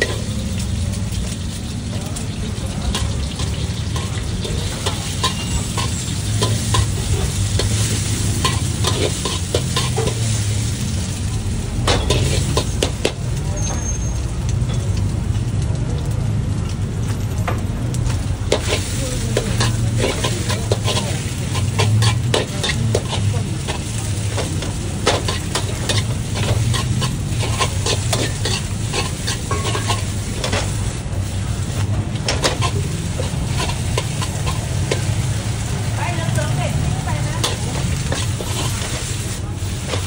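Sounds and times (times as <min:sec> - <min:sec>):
food sizzling: 0:00.0 - 0:40.0
gas flame rumble: 0:00.0 - 0:40.0
spatula scraping a wok: 0:02.9 - 0:11.2, 0:11.8 - 0:13.2, 0:18.4 - 0:40.0.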